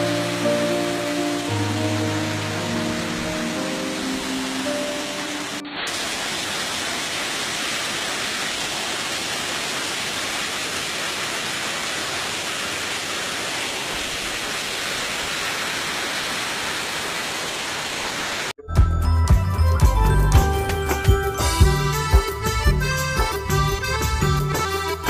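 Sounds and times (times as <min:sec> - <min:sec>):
waterfall rushing: 0:00.0 - 0:18.5.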